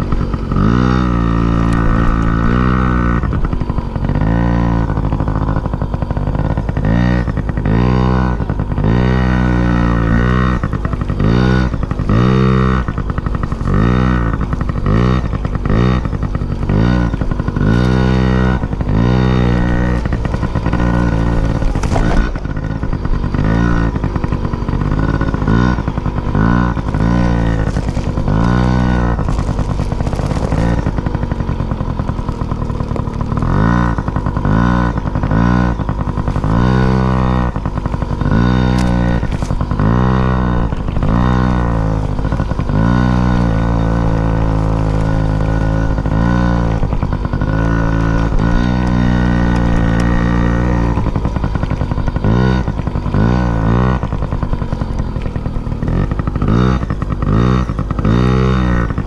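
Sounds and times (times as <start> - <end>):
vehicle engine revving: 0.0 - 59.0.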